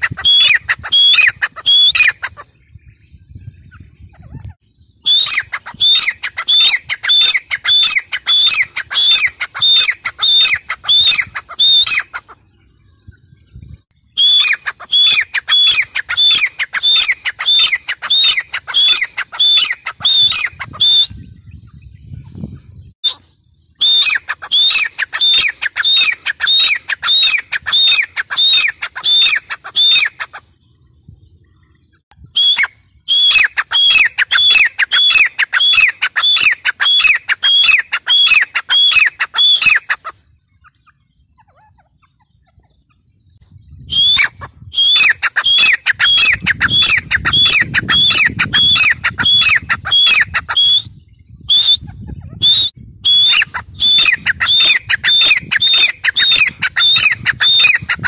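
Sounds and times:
francolin calling shrill notes: 0:05.0 - 0:12.2, 0:14.0 - 0:21.5, 0:23.0 - 0:30.3.

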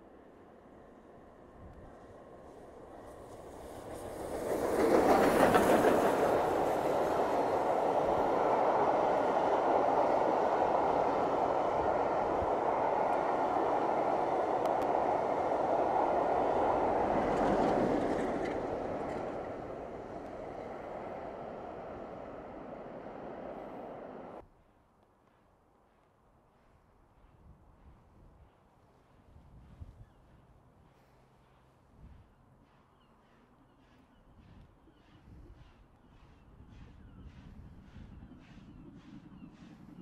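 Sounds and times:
steam train passing: 0:00.0 - 0:24.4
coaches rumbling on rails: 0:02.2 - 0:24.4.

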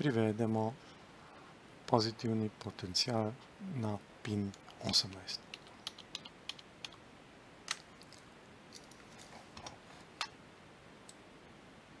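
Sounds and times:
computer input clicks and taps: 0:04.3 - 0:07.0.

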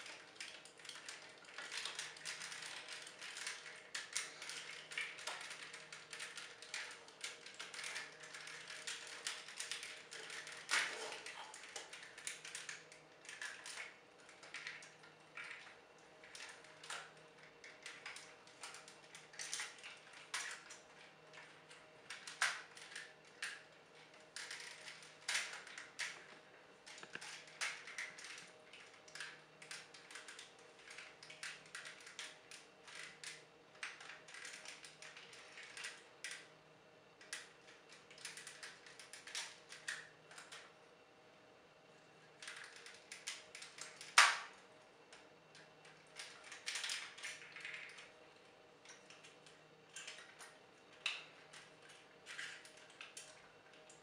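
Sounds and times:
plastic toy clicking and snapping: 0:42.4 - 0:44.5.

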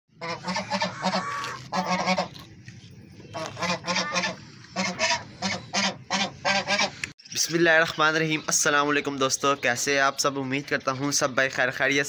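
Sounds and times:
poultry calling: 0:00.1 - 0:02.4, 0:03.2 - 0:07.0.

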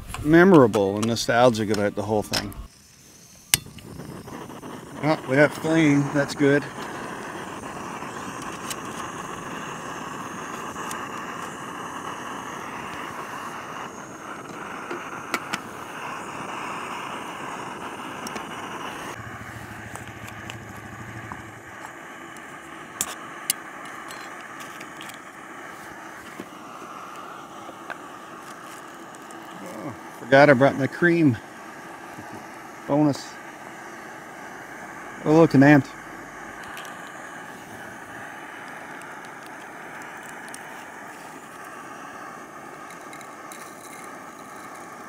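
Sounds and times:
gas burner hissing: 0:00.0 - 0:45.0
low hum: 0:19.0 - 0:22.9, 0:33.5 - 0:38.6.

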